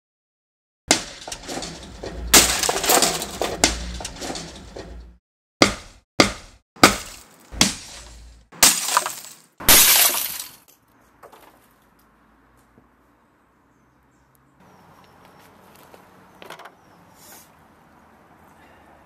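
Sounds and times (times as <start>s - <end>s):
rock smashing into monitor: 0.9s - 5.0s, 6.8s - 10.6s
glass screen shattering: 0.9s - 5.1s, 6.9s - 10.7s.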